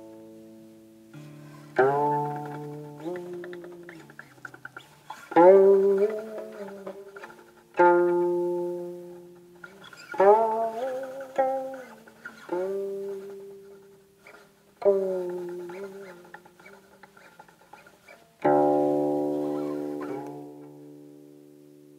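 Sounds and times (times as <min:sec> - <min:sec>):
plucked zither notes sliding: 0:01.1 - 0:21.0.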